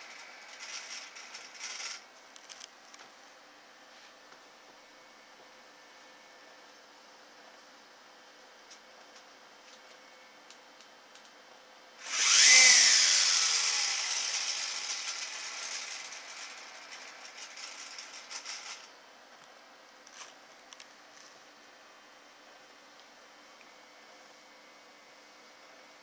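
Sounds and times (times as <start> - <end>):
small electric motor whirring: 0.0 - 2.0, 12.0 - 18.9.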